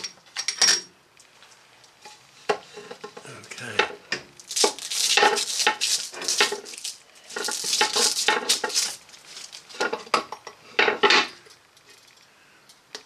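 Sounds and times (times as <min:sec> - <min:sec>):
paper tissue rustling: 0:04.5 - 0:09.8
metal parts clattering on wood: 0:04.5 - 0:11.3.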